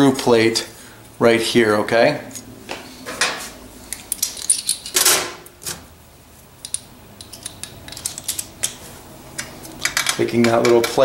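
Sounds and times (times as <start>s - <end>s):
metallic clinks and taps: 6.6s - 8.8s.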